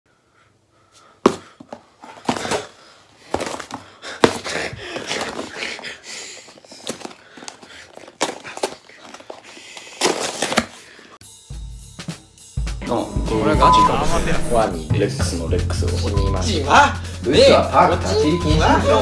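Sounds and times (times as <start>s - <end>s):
cardboard slaps: 1.2s - 2.7s, 3.3s - 5.7s, 10.0s - 10.8s
cardboard rustling and scuffling: 1.2s - 11.2s.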